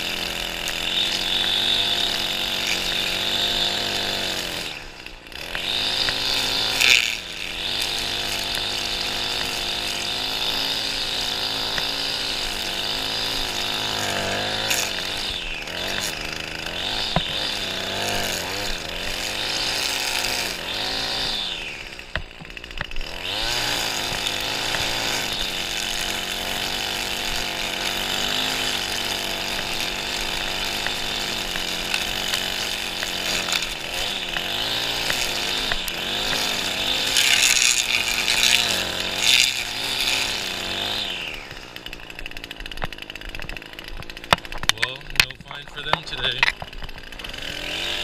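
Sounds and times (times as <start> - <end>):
string trimmer running: 0.0 - 48.0.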